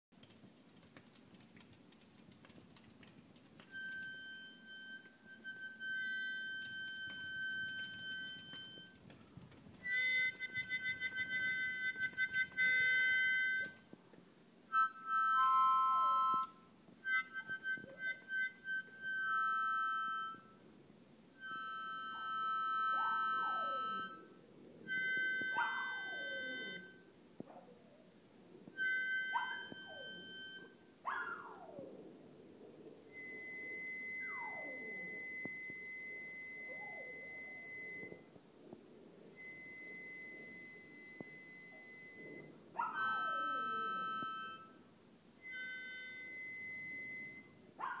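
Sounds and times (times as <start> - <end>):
harmonica long held notes: 3.7 - 9.1, 9.8 - 14.0, 14.7 - 20.7, 21.4 - 27.1, 28.6 - 30.9, 33.1 - 38.2, 39.4 - 47.6
small dog howling: 23.0 - 24.1, 25.4 - 26.9, 29.3 - 30.3, 31.1 - 31.9, 47.8 - 48.0.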